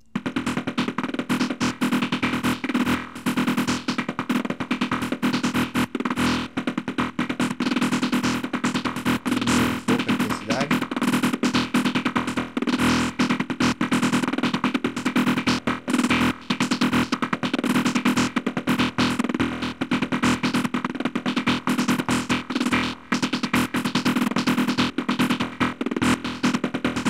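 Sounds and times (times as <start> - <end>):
chopped synth sequence: 0.0 - 19.2.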